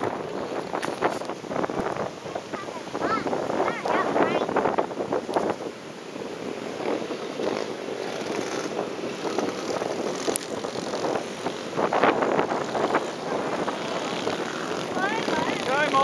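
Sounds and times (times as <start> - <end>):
motocross bike engines revving: 6.2 - 16.0.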